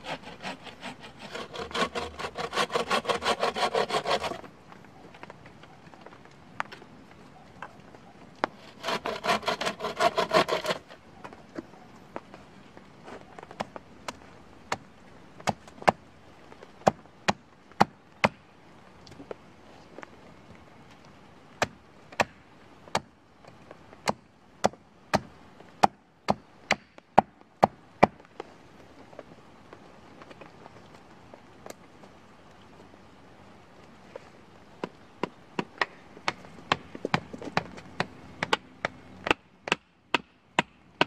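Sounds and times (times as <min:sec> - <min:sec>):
saw cutting through branch: 0:00.0 - 0:04.5, 0:08.6 - 0:11.0.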